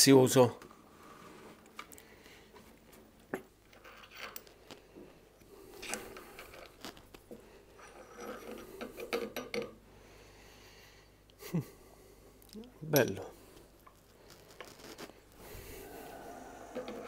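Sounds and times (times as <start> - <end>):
metal tools clinking: 12.9 - 13.3.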